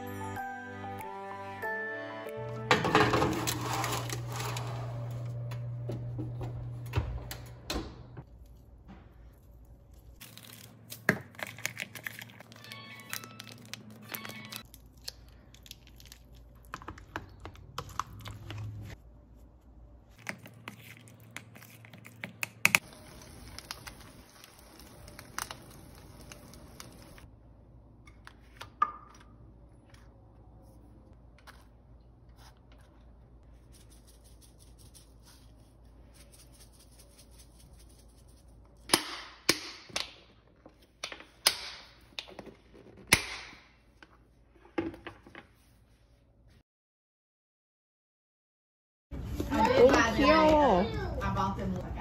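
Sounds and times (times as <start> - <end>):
tortillas crackling sizzle: 22.6 - 27.3.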